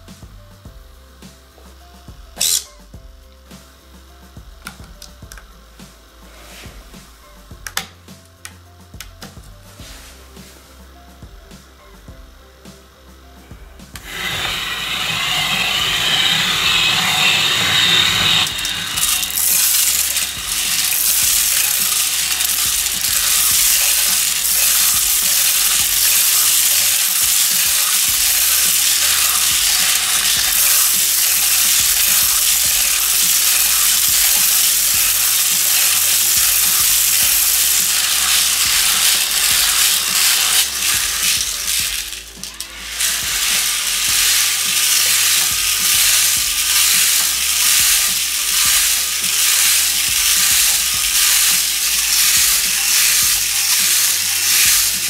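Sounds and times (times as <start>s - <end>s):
gravel rattling into plastic drum: 14.0s - 55.0s.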